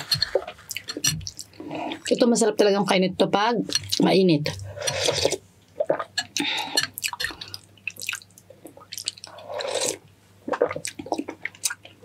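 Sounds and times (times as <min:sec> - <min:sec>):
wet slurps of noodle soup: 0:09.3 - 0:10.8.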